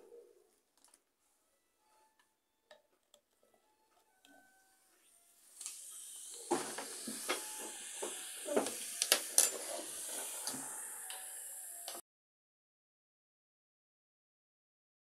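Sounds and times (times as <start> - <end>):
foam fizzing: 5.6 - 11.5.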